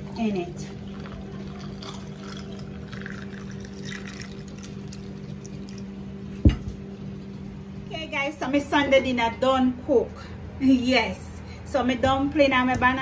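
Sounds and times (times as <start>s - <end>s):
juice pouring over ice: 0.6s - 6.0s.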